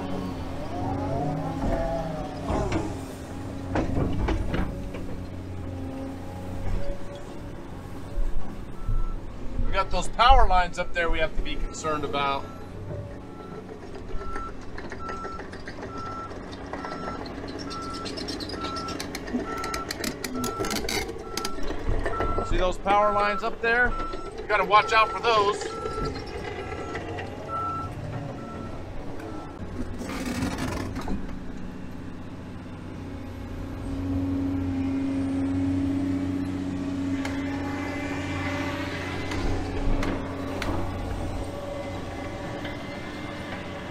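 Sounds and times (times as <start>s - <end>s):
diesel engine rumble: 0.0s - 43.9s
backup alarm beeping: 23.1s - 29.6s.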